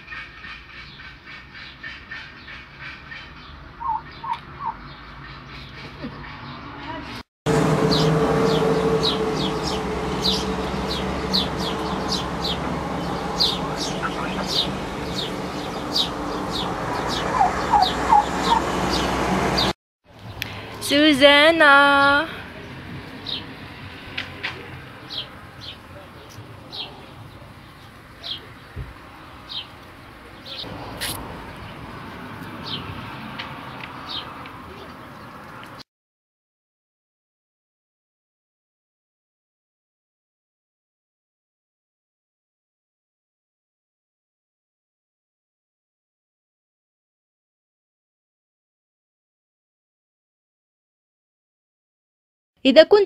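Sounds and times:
bird chirping: 0.0 - 7.2, 7.9 - 20.5
small bird chirping: 0.1 - 7.0.

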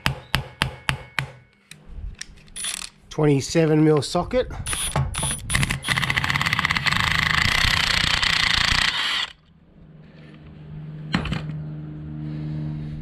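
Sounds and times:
impact wrench hammering: 0.0 - 1.5.

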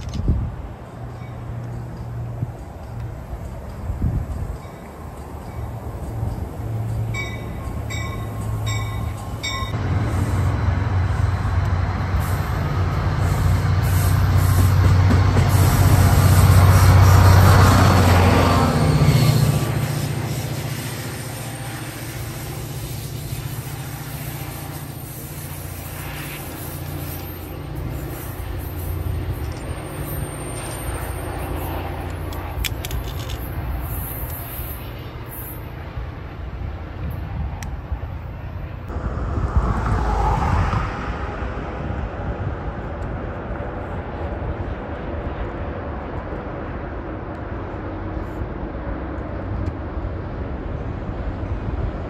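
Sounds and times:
wind on microphone: 0.0 - 0.8, 2.4 - 4.8, 36.0 - 52.0
diesel locomotive engine drone: 0.0 - 52.0
distant traffic: 0.0 - 52.0.

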